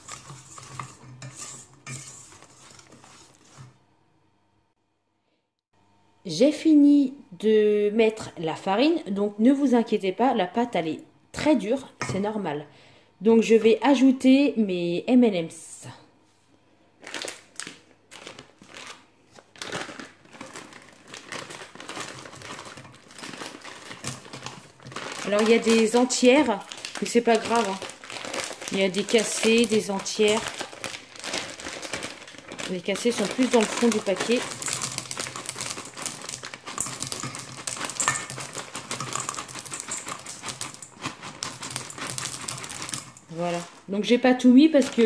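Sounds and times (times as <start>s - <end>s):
plastic packet crinkling: 17.0s - 43.9s, 44.7s - 45.0s
candies clicking into metal bowl: 19.8s - 43.8s.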